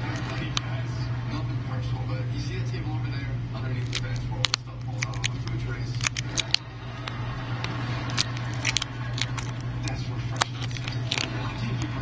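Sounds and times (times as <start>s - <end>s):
steady low hum: 0.0s - 12.0s
plastic film crackling: 3.8s - 6.6s, 7.7s - 12.0s.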